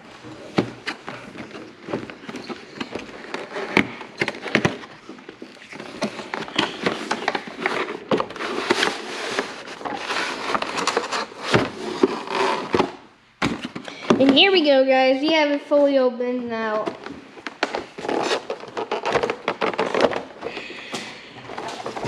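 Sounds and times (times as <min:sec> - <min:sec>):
packaging crinkling and crackling: 0:17.0 - 0:22.0.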